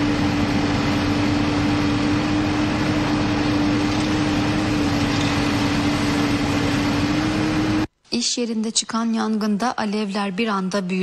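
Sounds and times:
diesel engine running: 0.0s - 7.9s.

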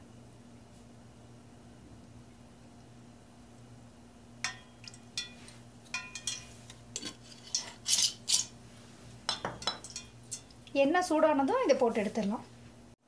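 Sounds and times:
low steady hum: 0.0s - 13.0s
metallic kitchenware clinks: 6.0s - 8.5s, 9.3s - 10.5s.

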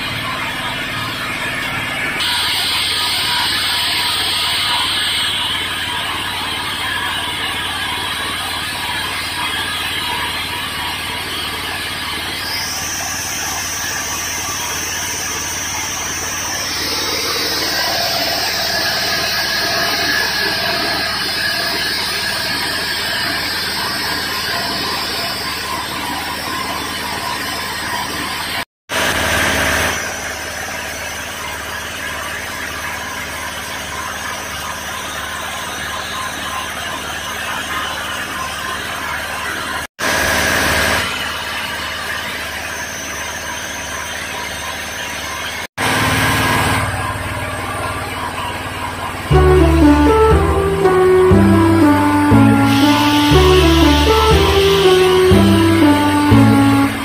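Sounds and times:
high whine: 12.5s - 25.3s, 49.3s - 57.0s.

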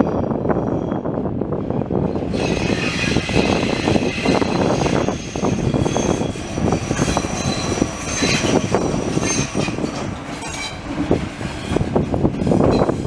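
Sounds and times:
train coaches rumbling: 0.0s - 13.0s
high wheel squeal: 2.3s - 10.9s.

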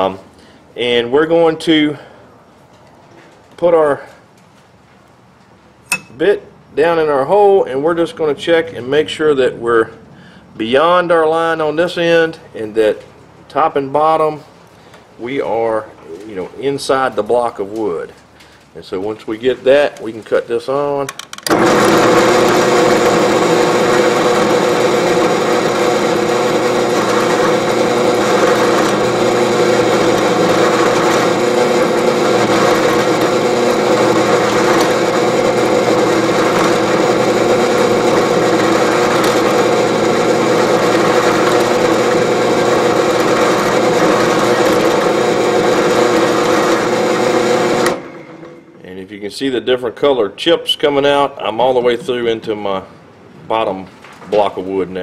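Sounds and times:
drill press boring wood: 21.4s - 48.6s.

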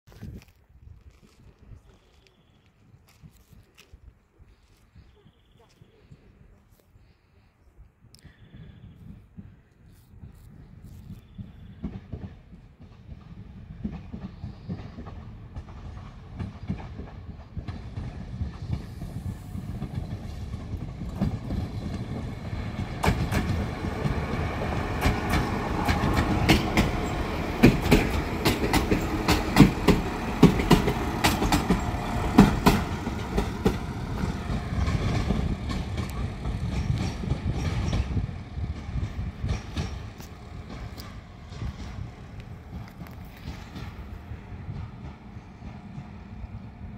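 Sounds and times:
diesel train engines running: 10.2s - 46.9s
train wheels rolling: 10.2s - 46.9s
wheels clicking over rail joints: 11.4s - 46.7s.

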